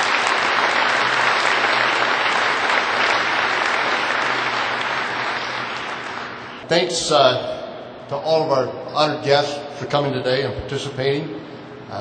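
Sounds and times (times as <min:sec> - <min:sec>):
crowd applauding: 0:00.0 - 0:06.6.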